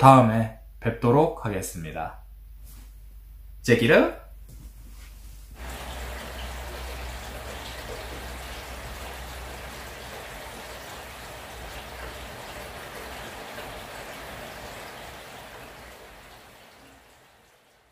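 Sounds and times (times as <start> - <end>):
steady rain hiss: 4.9 - 17.9.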